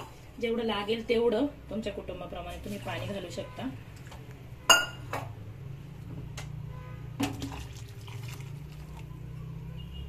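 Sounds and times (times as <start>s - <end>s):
curry bubbling in a pot: 7.3s - 9.3s.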